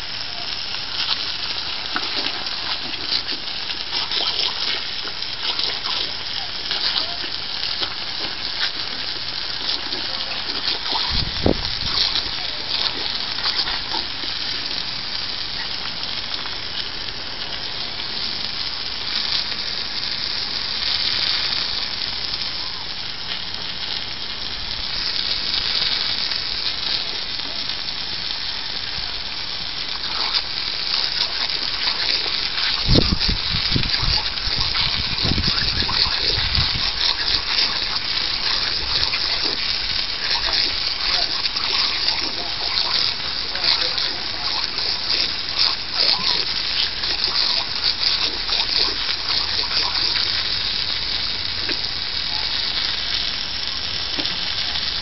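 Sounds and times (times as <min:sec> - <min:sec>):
hose water spraying on tiles: 0:00.0 - 0:55.0.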